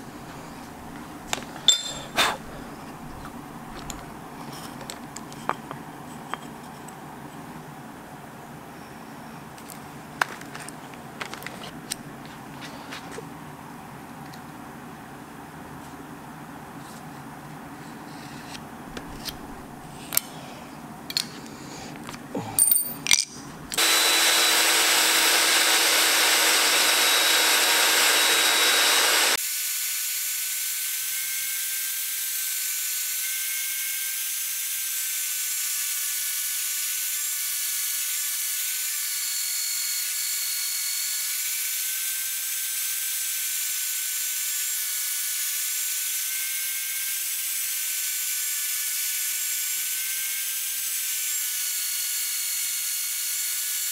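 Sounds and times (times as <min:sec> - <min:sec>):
band saw cutting wood: 0:00.0 - 0:04.1, 0:23.8 - 0:29.4.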